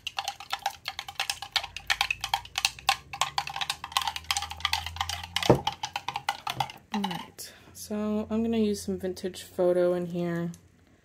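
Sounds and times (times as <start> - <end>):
spoon clinking in glass jar: 0.1 - 7.3.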